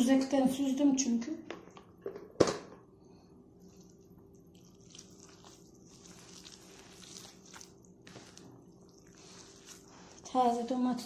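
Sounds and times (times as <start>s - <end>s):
faint steady hum: 0.0s - 11.0s
hands squishing wet food: 3.6s - 10.8s.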